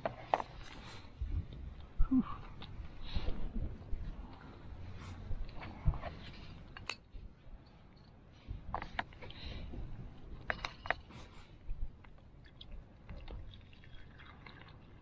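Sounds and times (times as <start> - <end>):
wind rumble on microphone: 0.0 - 14.2.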